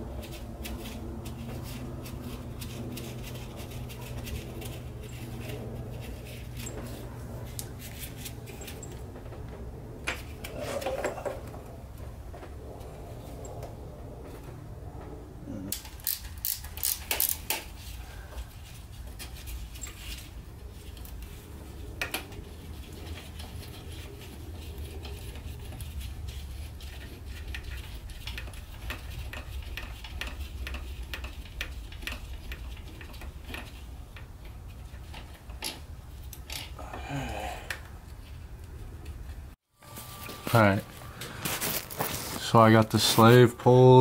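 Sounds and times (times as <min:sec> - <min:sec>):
low steady hum: 0:00.0 - 0:44.0
ratchet wrench clicking: 0:15.7 - 0:17.5.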